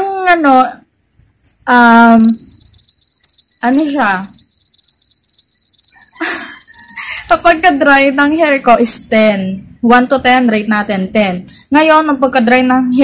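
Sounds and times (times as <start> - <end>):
cricket chirping: 2.0 - 7.4.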